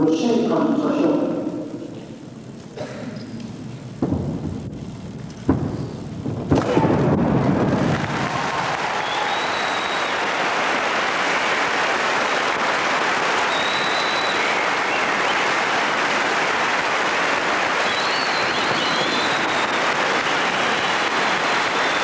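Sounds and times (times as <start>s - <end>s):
audience applauding: 6.6s - 22.0s
whistles: 8.9s - 10.4s, 13.4s - 15.5s, 17.8s - 22.0s.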